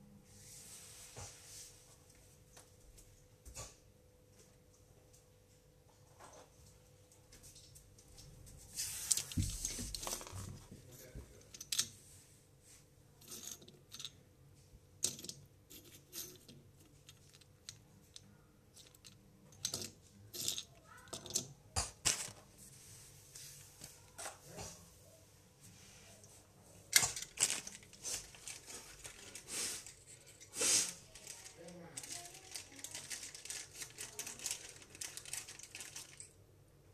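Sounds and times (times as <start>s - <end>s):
rustling: 27.1s - 36.3s.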